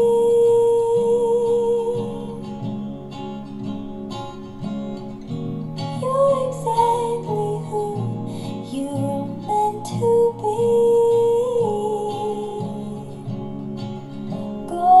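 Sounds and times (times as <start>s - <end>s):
person singing: 0.0s - 2.6s, 6.0s - 13.3s, 14.4s - 15.0s
plucked acoustic guitar: 0.0s - 15.0s.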